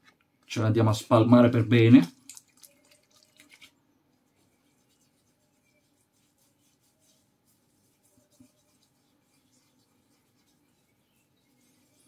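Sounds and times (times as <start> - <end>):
fingers rubbing beard: 4.6 - 12.0.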